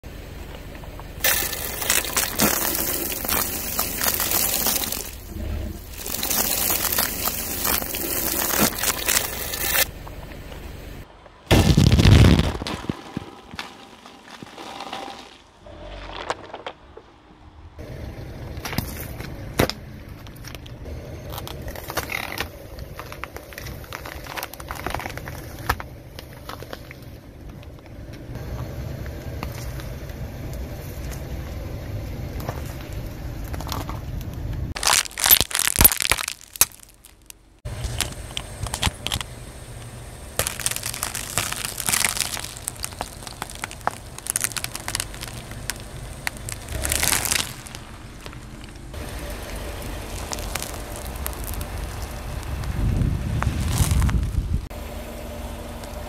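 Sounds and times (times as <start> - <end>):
tyre rumbling on asphalt: 0.0 - 54.8
objects cracking under a tyre: 0.4 - 17.8, 18.5 - 28.3, 32.4 - 54.7.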